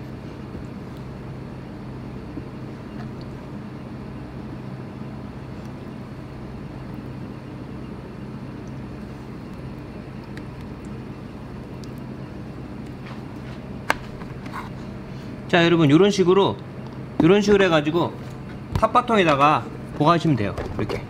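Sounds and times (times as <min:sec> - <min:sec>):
kitchen equipment hum: 0:00.0 - 0:16.1.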